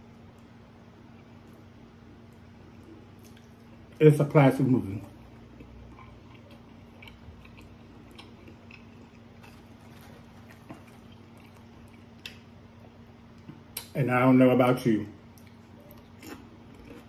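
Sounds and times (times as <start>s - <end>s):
low steady hum: 0.0s - 17.0s
tortilla chips crackling: 6.0s - 12.5s.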